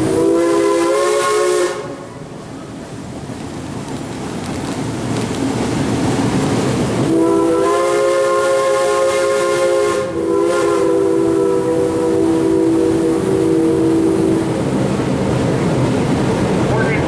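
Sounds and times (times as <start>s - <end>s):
steam locomotive whistle blast: 0.0s - 2.1s, 7.1s - 14.6s
hiss and rumble of moving train: 0.0s - 17.0s.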